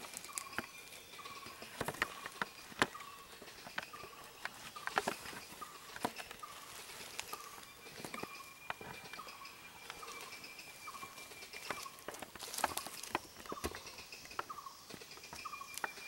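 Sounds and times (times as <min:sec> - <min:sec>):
leaf litter crackling underfoot: 0:00.0 - 0:01.0, 0:01.6 - 0:08.3, 0:09.8 - 0:13.6.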